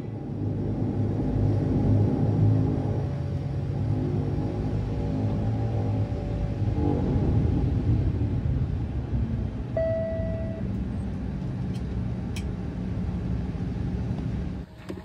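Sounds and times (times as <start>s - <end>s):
turboprop engines droning: 0.0s - 15.0s
short beep: 9.8s - 10.7s.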